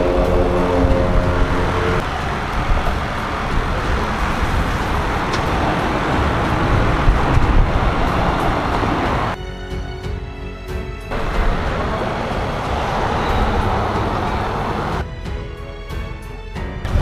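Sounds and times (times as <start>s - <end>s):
wind buffeting microphone: 0.0s - 9.4s
road traffic: 0.0s - 17.0s.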